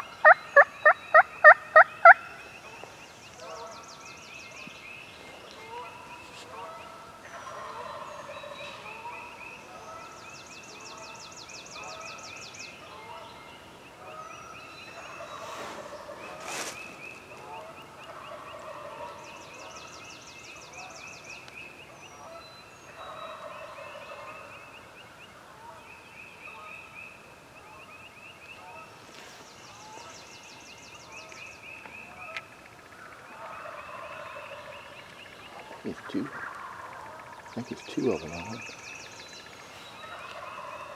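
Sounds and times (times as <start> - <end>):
turkey gobbling: 0.0 - 2.3, 17.6 - 19.2, 23.0 - 24.4, 32.3 - 34.9, 35.5 - 37.9, 40.0 - 40.9.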